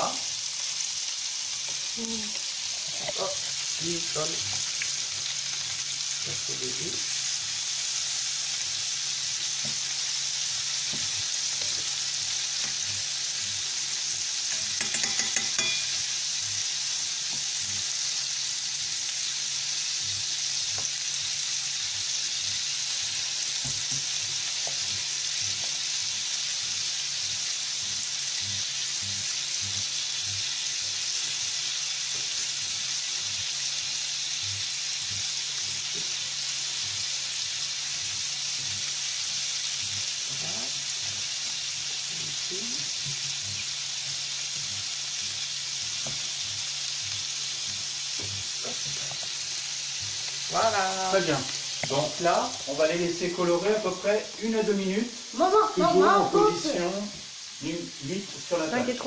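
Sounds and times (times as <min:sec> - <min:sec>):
meat sizzling in a pan: 0:00.0 - 0:59.0
fork scraping and tapping pan: 0:12.6 - 0:13.0, 0:14.5 - 0:16.1.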